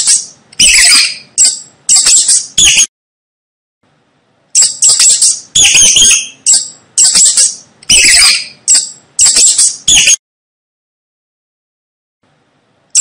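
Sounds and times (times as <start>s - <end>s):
mice squeaking: 0.0s - 2.9s, 4.5s - 10.2s.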